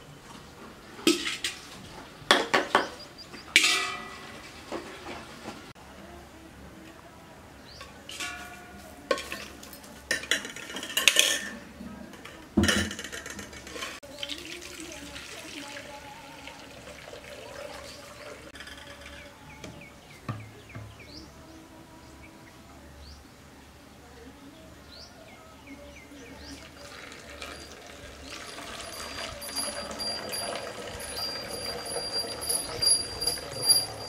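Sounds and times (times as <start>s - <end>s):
metal pots clanking: 1.0s - 5.6s, 8.1s - 14.0s, 26.8s - 34.0s.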